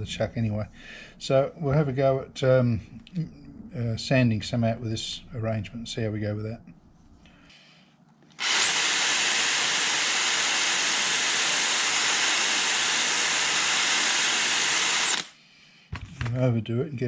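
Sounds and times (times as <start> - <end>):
drill motor whine: 8.4 - 15.3.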